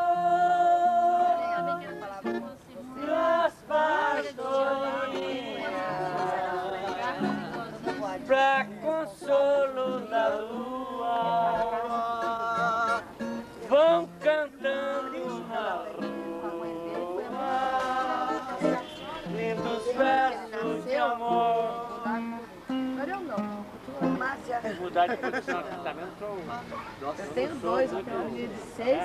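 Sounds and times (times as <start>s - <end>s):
man singing: 0.0s - 2.0s, 2.9s - 22.6s
acoustic guitar: 0.0s - 29.0s.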